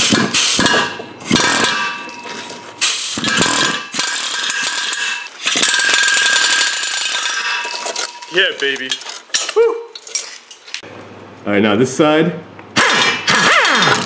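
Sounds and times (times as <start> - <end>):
impact wrench whining: 0.0 - 8.3, 12.8 - 14.0.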